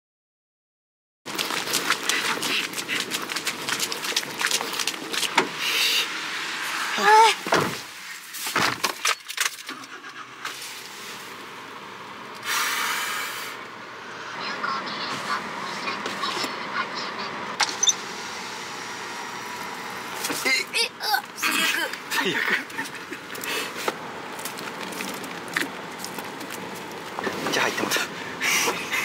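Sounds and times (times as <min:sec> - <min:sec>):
person exclaiming: 0:06.9 - 0:07.4, 0:20.4 - 0:22.7
footsteps crunching on snow: 0:22.7 - 0:27.7.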